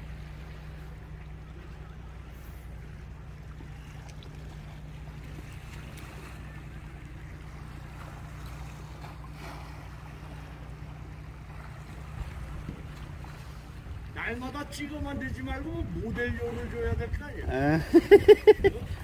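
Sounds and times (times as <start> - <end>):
low hum: 0.0 - 19.0
sea washing against concrete: 0.0 - 19.0
wind: 0.0 - 19.0.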